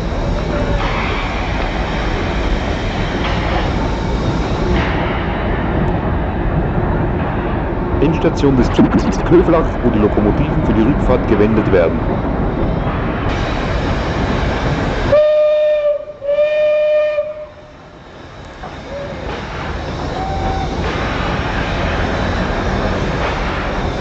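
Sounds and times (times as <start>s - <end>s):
steady rushing noise: 0.0s - 15.2s, 17.5s - 24.0s
steam locomotive whistle: 15.0s - 17.7s, 20.0s - 20.8s.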